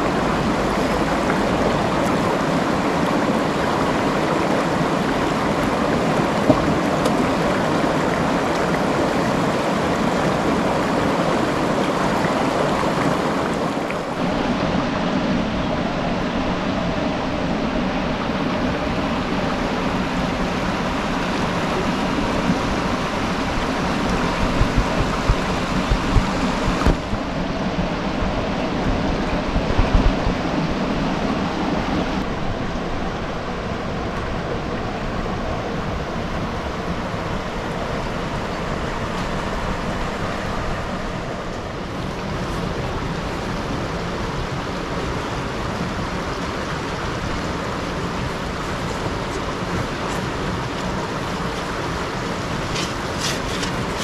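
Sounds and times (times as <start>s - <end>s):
river rushing over stones: 0.0s - 54.0s
low thumps: 24.4s - 30.4s.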